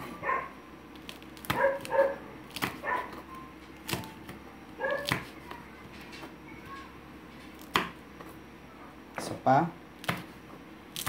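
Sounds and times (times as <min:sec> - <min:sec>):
knife chopping on wooden board: 0:01.1 - 0:03.2, 0:03.8 - 0:05.4, 0:07.6 - 0:08.3, 0:10.0 - 0:10.4.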